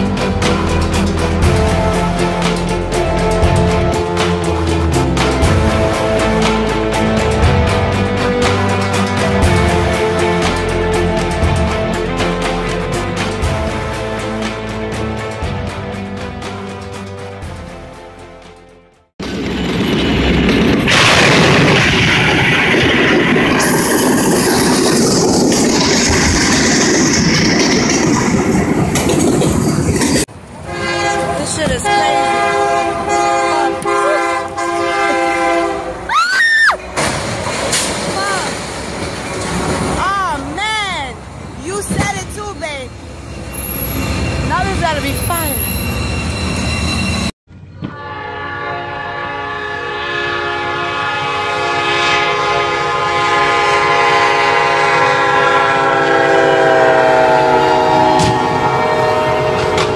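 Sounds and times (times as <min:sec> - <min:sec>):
train rumbling through crossing: 0:00.0 - 0:59.9
locomotive air horn blasts: 0:30.6 - 0:36.1, 0:47.9 - 0:59.9
rising and falling squeal: 0:45.6 - 0:47.4.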